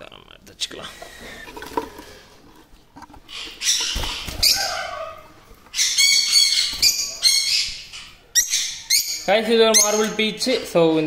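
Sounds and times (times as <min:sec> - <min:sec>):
lovebirds squawking: 0:03.2 - 0:11.0.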